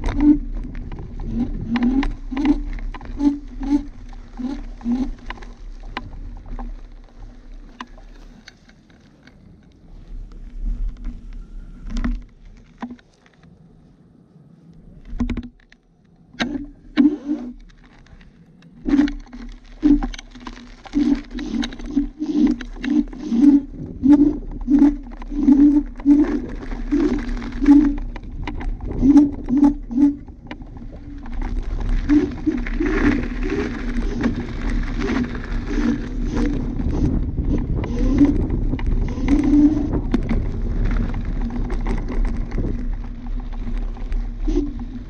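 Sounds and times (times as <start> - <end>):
low throbbing hum: 0.0 - 8.5, 16.3 - 45.0
scooter knocking and rattling: 0.0 - 9.4, 18.8 - 45.0.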